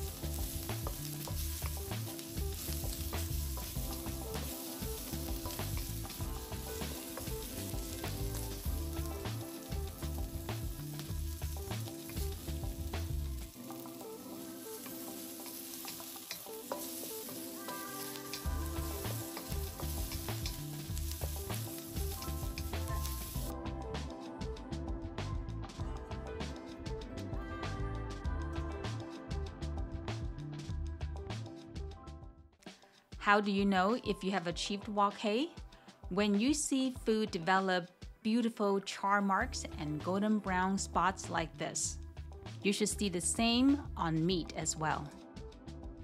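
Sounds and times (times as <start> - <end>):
vegetables sizzling in a wok: 0.0 - 23.6.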